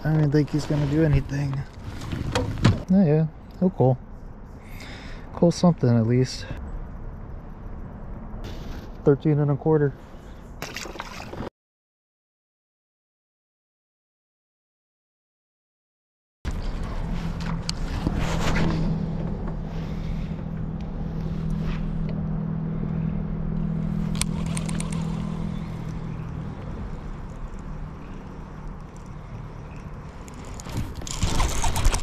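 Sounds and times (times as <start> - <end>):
fishing rod rustle and scrape: 0.0 - 2.6, 16.5 - 22.1, 23.9 - 32.0
electric motor humming: 18.9 - 30.7.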